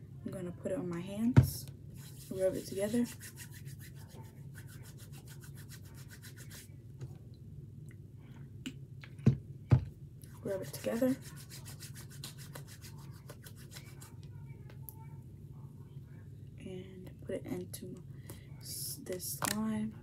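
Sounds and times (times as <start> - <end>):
hands rubbing together: 2.0 - 6.7, 10.6 - 14.2.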